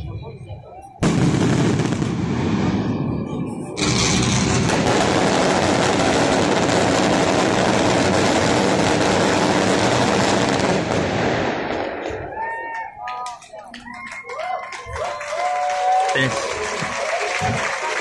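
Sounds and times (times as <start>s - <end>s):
fireworks barrage: 1.0s - 12.6s.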